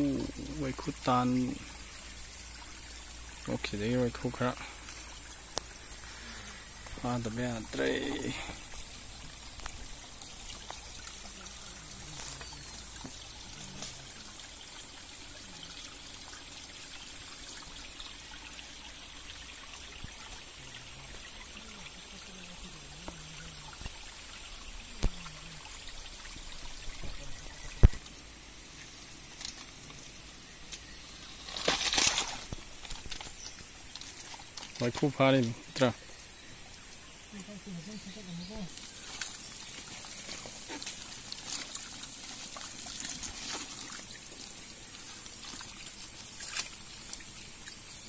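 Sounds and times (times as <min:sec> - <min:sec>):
water trickling over stones: 0:00.0 - 0:48.0
brief rustle: 0:31.4 - 0:34.8.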